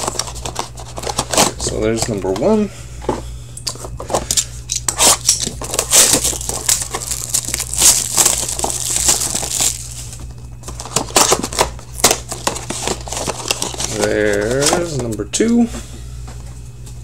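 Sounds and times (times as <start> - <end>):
plastic wrap crinkling: 5.0 - 14.8.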